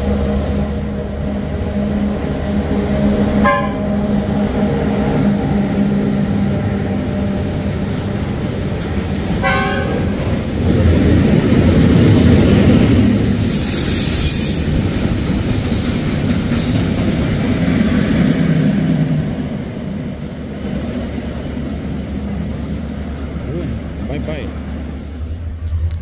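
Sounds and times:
train engine hum: 0:00.0 - 0:26.0
train rumbling on rails: 0:00.0 - 0:26.0
train horn toots: 0:03.3 - 0:04.2, 0:09.4 - 0:10.2.

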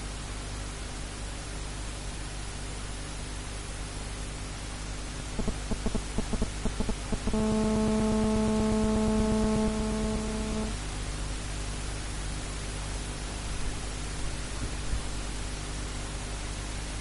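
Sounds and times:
background hiss: 0:05.3 - 0:10.8
horn blasts: 0:07.2 - 0:10.8.

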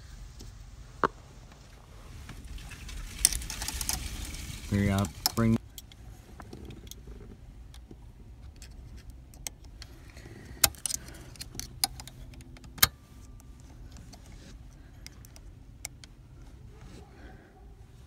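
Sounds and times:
metal pick clicking in lock: 0:10.5 - 0:12.9.

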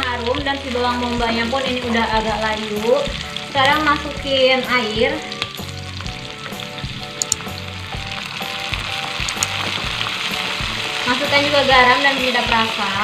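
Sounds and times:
onions sizzling in oil: 0:00.0 - 0:13.0
sharp clicks: 0:07.2 - 0:07.5, 0:09.2 - 0:09.6.

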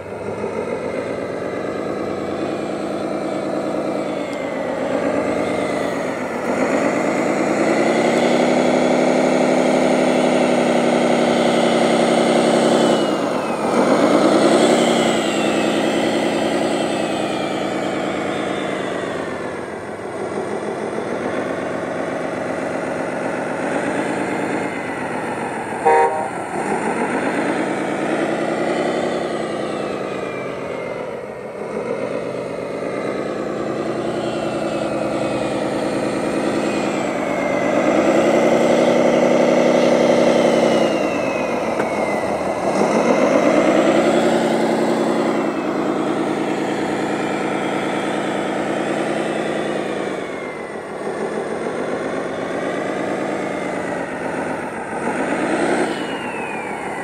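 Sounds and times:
model loader engine revving: 0:00.0 - 0:57.0
horn toot: 0:25.8 - 0:26.4.

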